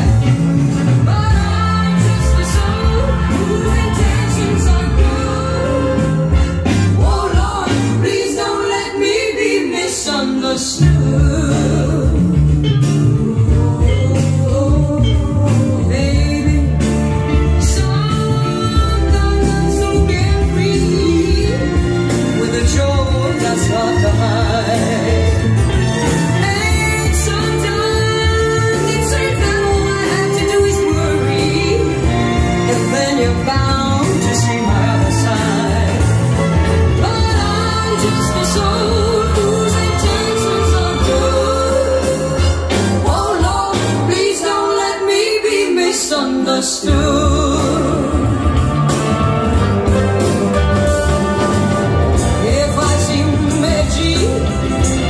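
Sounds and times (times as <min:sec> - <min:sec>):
bass line: 0:00.0 - 0:08.4, 0:10.8 - 0:44.5, 0:46.9 - 0:55.0
guitar: 0:00.0 - 0:55.0
person singing: 0:00.8 - 0:55.0.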